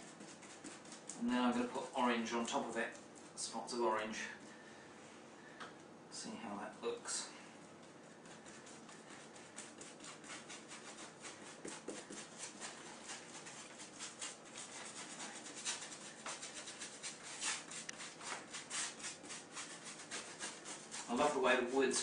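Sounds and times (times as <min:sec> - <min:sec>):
paintbrush scrubbing rough wood: 0:08.2 - 0:22.0.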